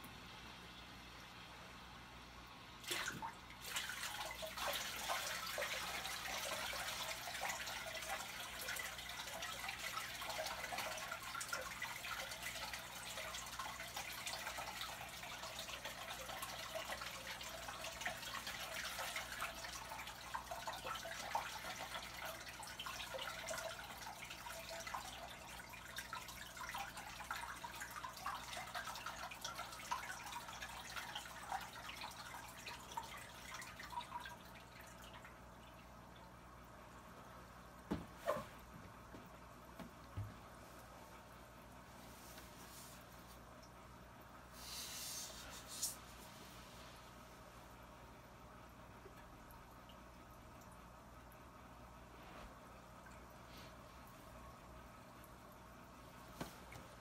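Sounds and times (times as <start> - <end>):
water splashing and trickling: 2.8 - 38.3.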